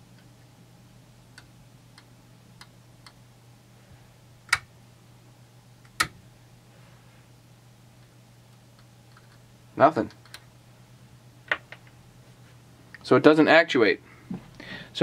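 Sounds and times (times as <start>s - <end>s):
faint low hum: 0.0s - 15.0s
test leads clicking on terminals: 1.3s - 3.2s, 10.0s - 10.5s.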